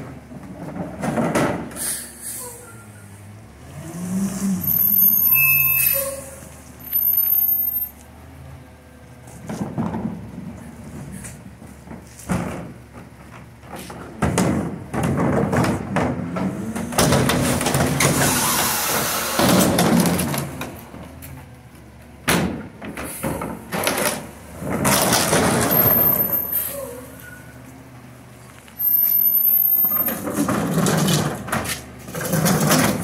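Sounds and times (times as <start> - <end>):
cart banging against truck: 0.0 - 2.0, 9.4 - 21.2, 22.2 - 27.0, 28.8 - 33.0
trash sliding out: 22.9 - 27.4, 28.8 - 33.0.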